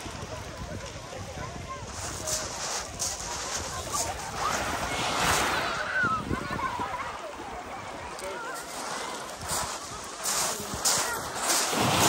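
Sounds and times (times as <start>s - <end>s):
wave breaking on shingle beach: 1.9s - 7.4s, 8.5s - 12.0s.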